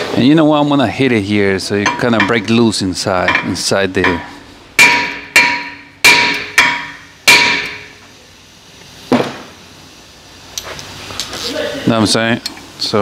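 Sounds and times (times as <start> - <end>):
hammer striking metal rotor: 1.8 - 8.0.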